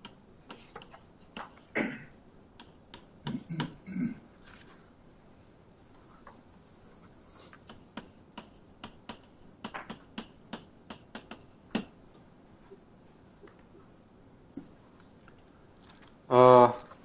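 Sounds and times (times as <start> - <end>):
chalk tapping on blackboard: 7.6 - 11.9.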